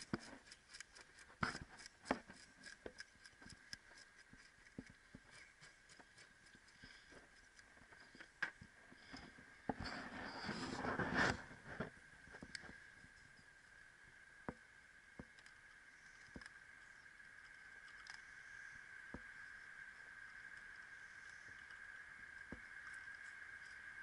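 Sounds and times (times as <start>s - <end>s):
fish scaler scraping scales: 0.0s - 8.2s.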